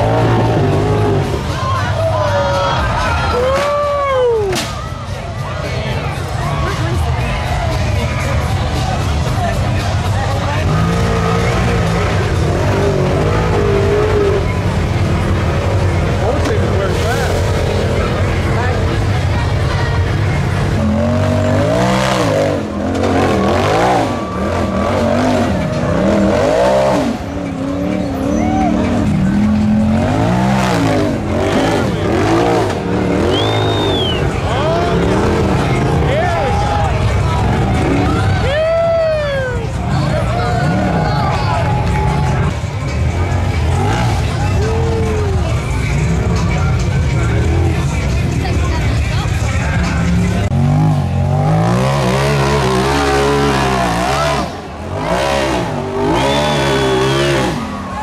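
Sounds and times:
engine revving: 0.0 - 1.6, 8.4 - 38.5, 39.9 - 58.0
engine revving hard: 20.6 - 36.2, 49.9 - 58.0.

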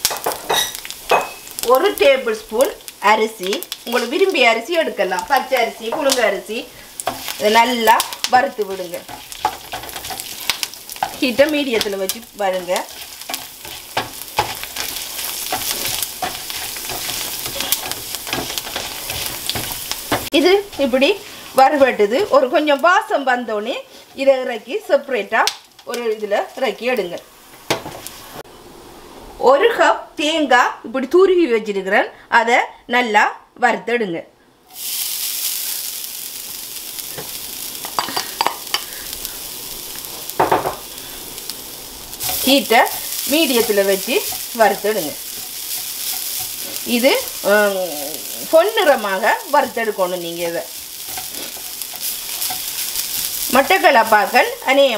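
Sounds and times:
spices and rice sizzling in oil: 0.0 - 28.5, 34.6 - 54.9
spatula scraping a pan: 6.7 - 22.6, 50.8 - 54.5.

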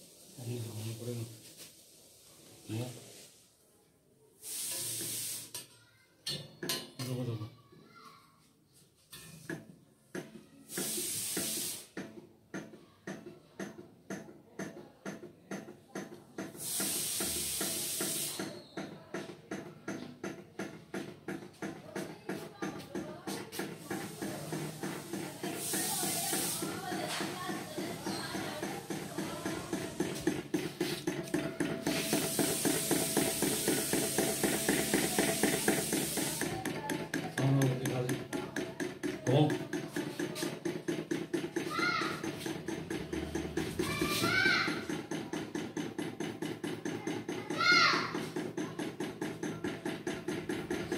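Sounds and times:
loud hiss: 4.4 - 5.6, 10.7 - 11.9, 16.6 - 18.5, 24.0 - 30.0, 31.9 - 36.5
engine knocking: 27.5 - 43.7, 44.8 - 47.4, 48.2 - 50.9.

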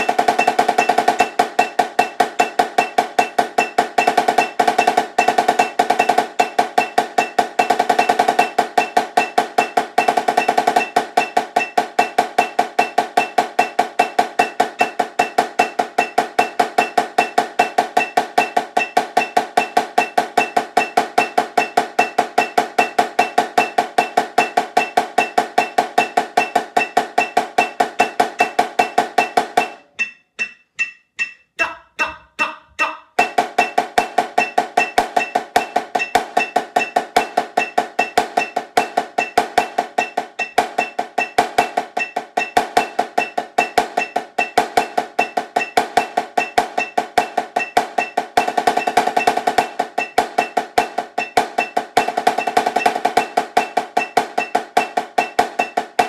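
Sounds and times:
metronome click: 0.0 - 33.8
snare drum played with sticks: 0.0 - 56.0.

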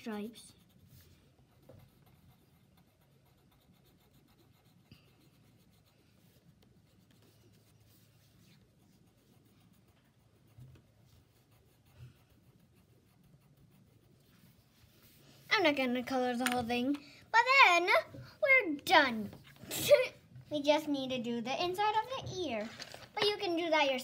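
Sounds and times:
pencil scratching on paper: 0.0 - 16.6.

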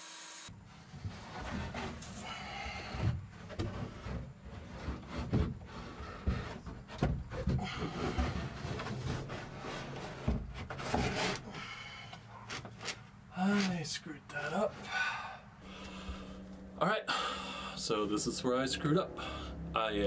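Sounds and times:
wood scraping on wood: 0.6 - 13.9.

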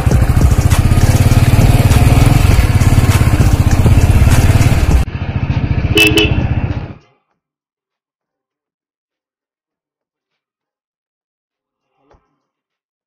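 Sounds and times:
motorcycle engine running: 0.0 - 7.0.

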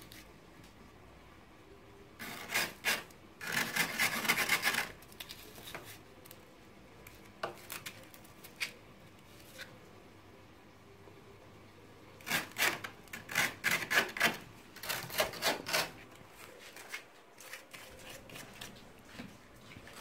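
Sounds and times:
tool scraping ice: 2.2 - 5.0.

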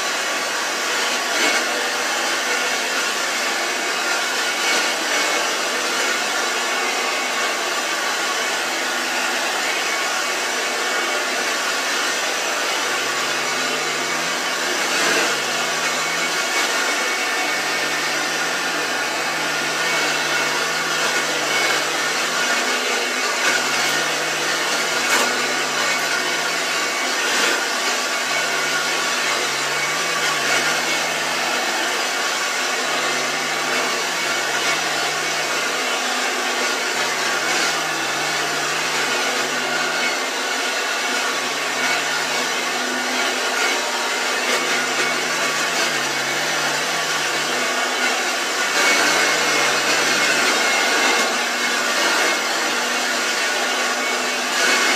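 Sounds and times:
vacuum cleaner running: 0.0 - 54.9.

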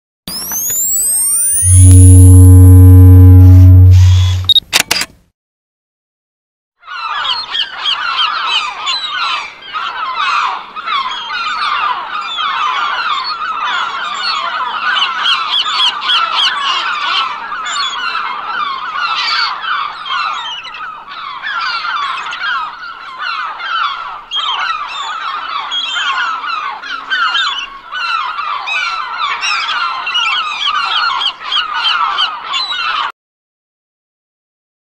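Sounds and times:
gulls squawking: 6.9 - 33.1.

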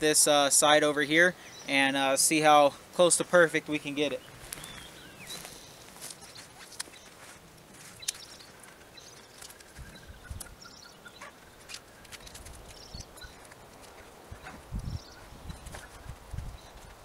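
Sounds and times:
small birds chirping: 0.1 - 17.0
hammock strap clicks and rustles: 6.0 - 10.6, 11.3 - 14.6.

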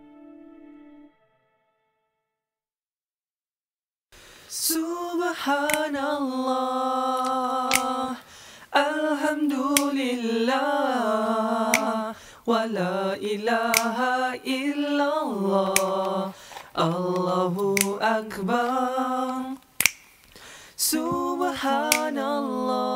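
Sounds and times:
person singing unaccompanied: 4.6 - 19.8, 20.8 - 22.9
sharp snaps: 5.6 - 6.0, 7.1 - 8.3, 9.7 - 10.1, 11.7 - 12.2, 13.6 - 14.2, 15.6 - 22.3.

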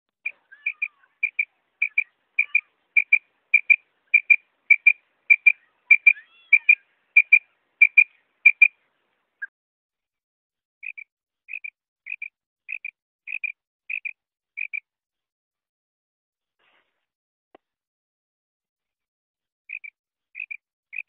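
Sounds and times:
quail calling: 0.2 - 8.8, 10.8 - 14.8, 19.7 - 21.0.

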